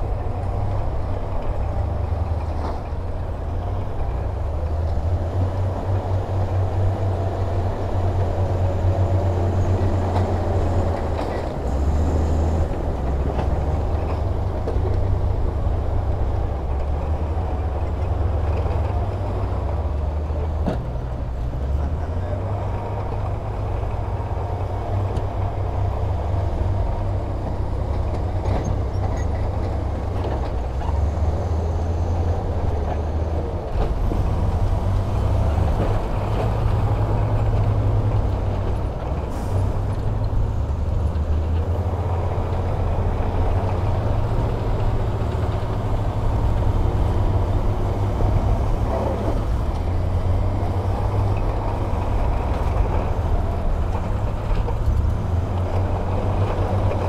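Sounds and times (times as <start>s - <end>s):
diesel engine rumbling: 0.0s - 57.0s.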